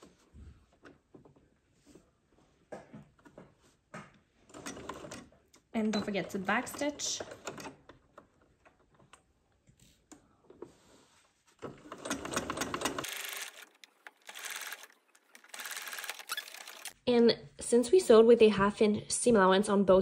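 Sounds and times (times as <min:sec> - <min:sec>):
sewing machine stitching: 0:04.5 - 0:08.4, 0:11.6 - 0:17.0.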